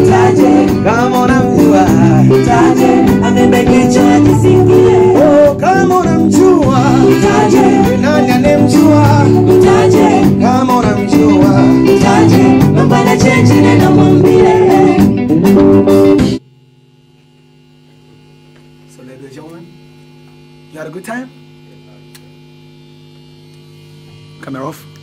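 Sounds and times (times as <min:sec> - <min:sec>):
man singing lead: 0:00.0 - 0:15.2
backing singers: 0:00.0 - 0:15.6
live band music: 0:00.0 - 0:16.4
steady electrical hum: 0:16.3 - 0:25.0.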